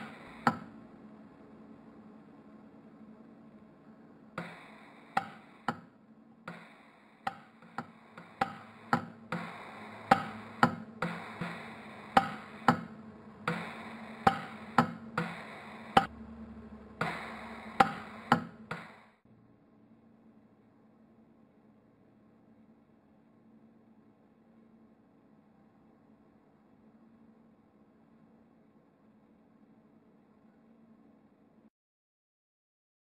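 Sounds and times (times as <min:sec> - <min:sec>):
gas hiss: 0:00.0 - 0:00.7, 0:04.4 - 0:05.9, 0:06.5 - 0:16.1, 0:17.0 - 0:19.1
low hum: 0:00.0 - 0:31.0
welder pulse cracks: 0:04.4 - 0:05.9, 0:06.5 - 0:19.1.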